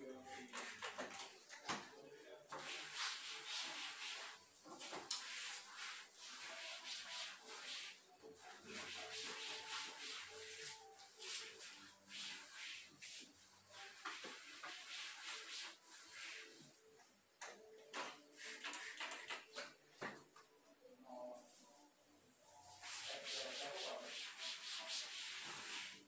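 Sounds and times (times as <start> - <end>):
cloth rubbing wooden shelves: 2.6 - 16.8.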